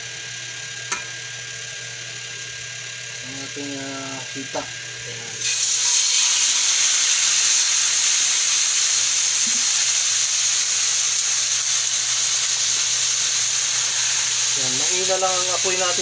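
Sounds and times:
chicken sizzling in oil: 0:05.3 - 0:16.0.

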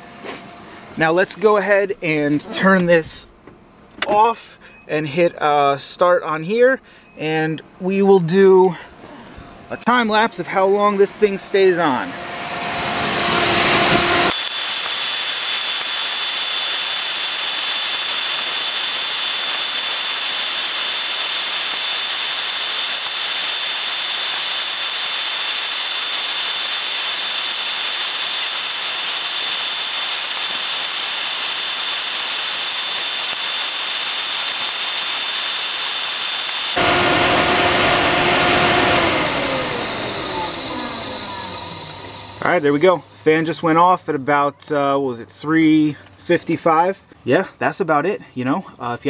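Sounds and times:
radiator cooling fan running: 0:10.9 - 0:42.8.

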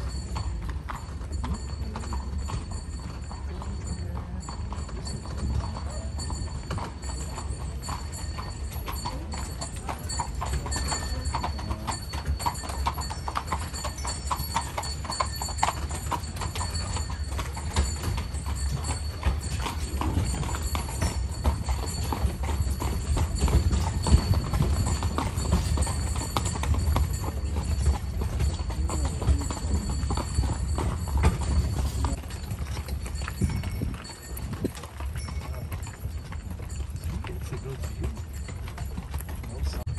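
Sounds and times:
horse hooves clip-clopping on road: 0:00.0 - 0:39.9.

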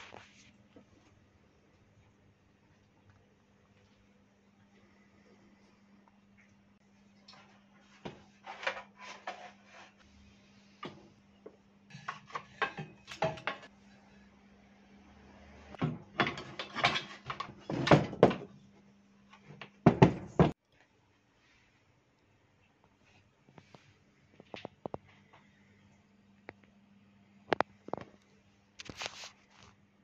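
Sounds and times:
metal parts and tools clattering: 0:16.1 - 0:18.4.

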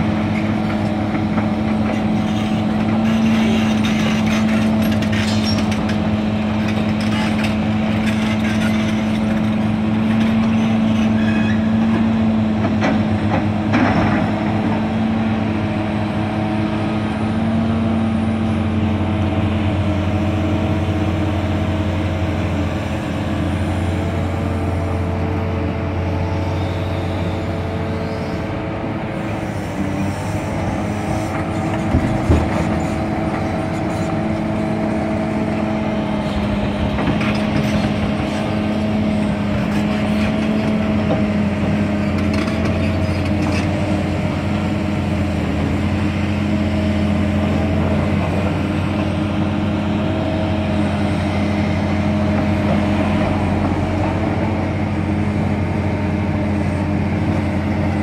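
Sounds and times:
excavator diesel engines running: 0:00.0 - 0:58.0
metal knocks and clanks: 0:31.6 - 0:33.4.

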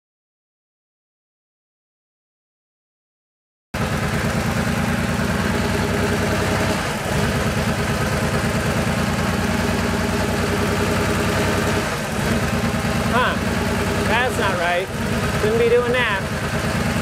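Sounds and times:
car engine idling unevenly: 0:03.8 - 0:17.0.

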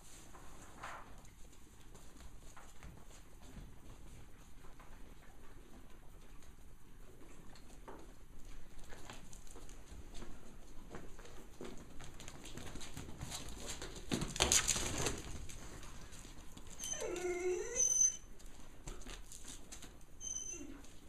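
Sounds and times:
wavering animal cry: 0:16.8 - 0:18.3, 0:20.2 - 0:20.8.

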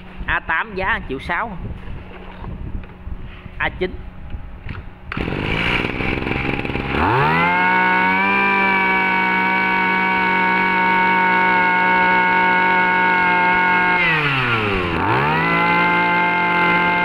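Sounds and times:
brush cutter engine revving: 0:05.1 - 0:17.0.

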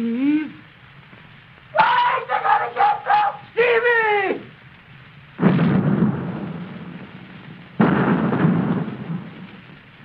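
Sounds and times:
old record surface hiss: 0:00.0 - 0:10.0
deep explosion crashes: 0:05.4 - 0:09.8.

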